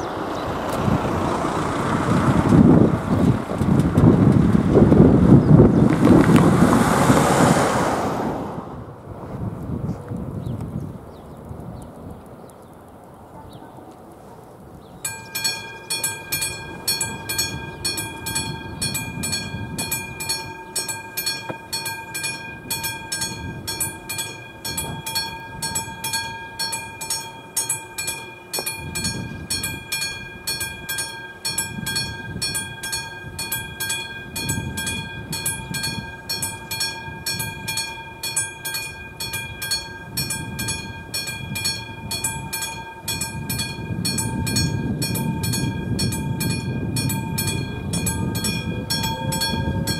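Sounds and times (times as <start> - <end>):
wind rumbling on microphone: 0.0 - 49.9
electric warning bell ringing: 15.0 - 49.9.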